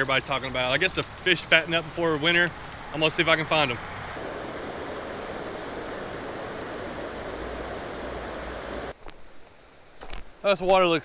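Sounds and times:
water rushing over rocks: 0.0 - 8.9.

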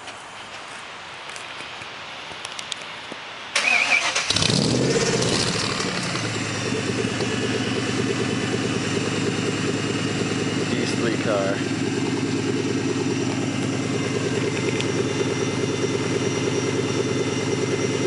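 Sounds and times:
car engine revving and idling: 3.9 - 18.0.

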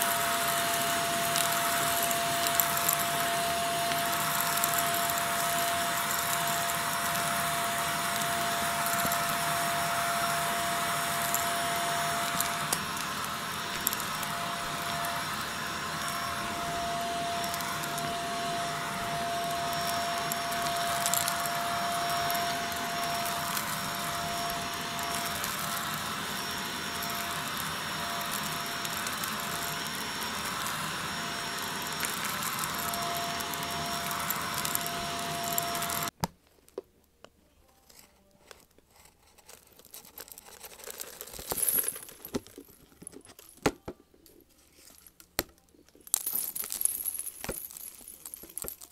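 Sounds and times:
vacuum cleaner motor whine: 0.0 - 36.2.

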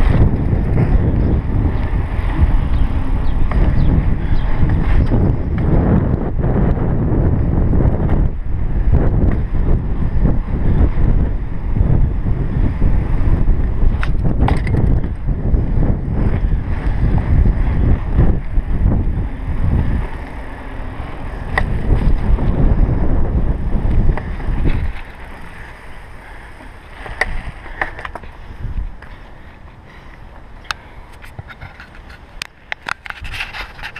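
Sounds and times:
sharp click from bicycle: 0.0 - 6.8, 13.6 - 15.4, 21.4 - 22.6, 30.1 - 33.9
bicycle rattles: 0.0 - 33.9
bicycle tyre noise: 0.0 - 33.9
wind buffeting microphone: 0.0 - 33.9.

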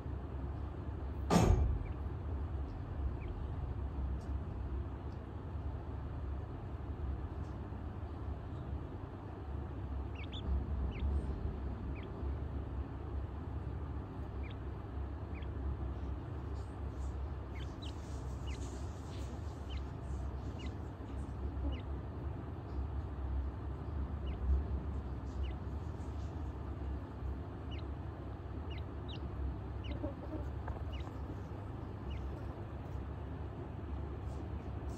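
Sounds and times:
chicks peeping: 1.6 - 4.4, 9.8 - 34.9
low hum: 9.9 - 34.9.

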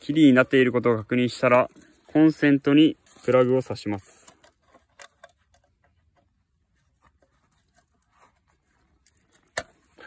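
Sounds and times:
plug clicks and scrapes: 4.0 - 6.3.

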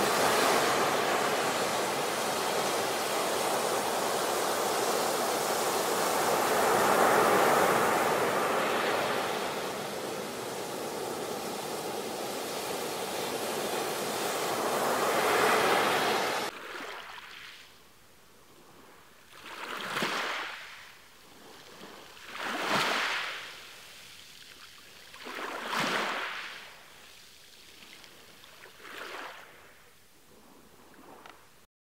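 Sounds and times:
ocean surf breaking: 0.0 - 16.6.

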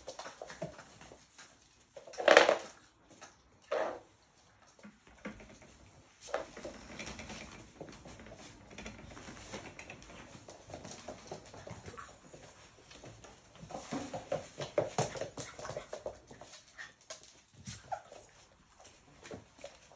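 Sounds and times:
paws pattering on laminate floor: 0.0 - 2.1, 4.4 - 19.9
scuffling in bedding and toys: 0.0 - 19.9
puppy noises: 15.1 - 18.6.

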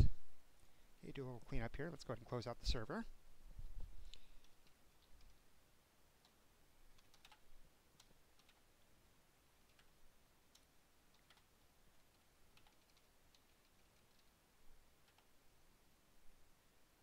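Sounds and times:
faint keyboard typing: 4.0 - 5.5, 6.2 - 9.0, 9.6 - 15.4.

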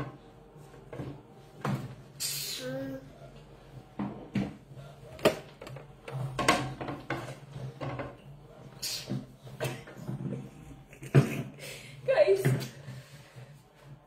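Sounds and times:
knocks and clatter on tabletop: 4.0 - 8.3.

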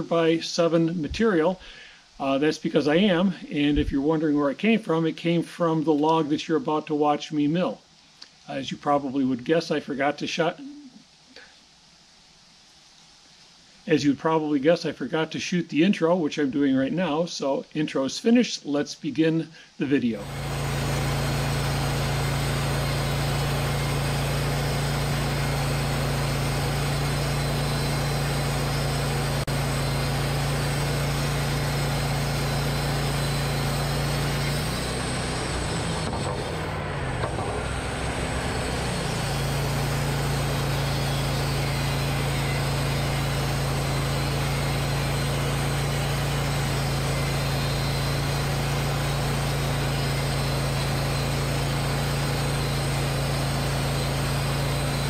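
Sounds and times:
bandsaw sawmill sawing log: 20.2 - 55.0.

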